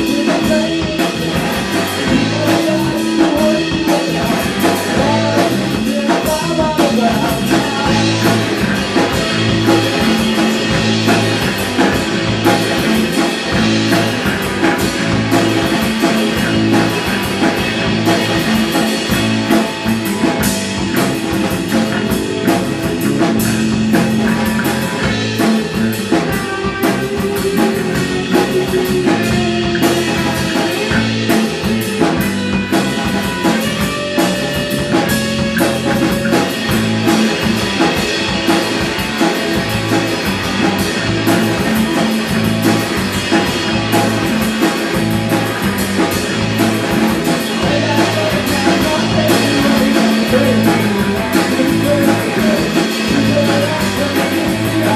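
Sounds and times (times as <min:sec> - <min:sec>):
drum kit with cymbals: 0:00.0 - 0:54.9
electric guitars: 0:00.0 - 0:54.9.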